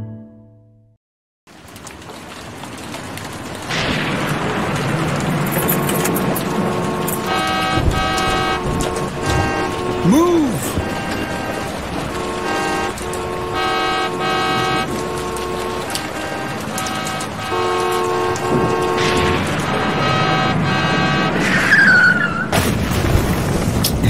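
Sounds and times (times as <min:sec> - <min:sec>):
thunder crash: 0:03.6 - 0:10.0, 0:10.6 - 0:24.0
car horns honking: 0:05.5 - 0:22.6
brief squeal: 0:21.4 - 0:22.5.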